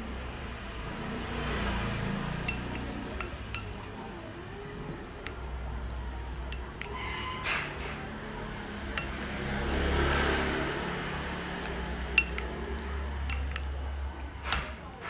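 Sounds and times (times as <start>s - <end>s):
chopsticks stirring meat in bowl: 0.4s - 15.0s
chopsticks clinking on bowl: 2.4s - 4.3s, 6.2s - 7.0s, 8.9s - 9.4s, 10.0s - 10.6s, 11.6s - 14.8s.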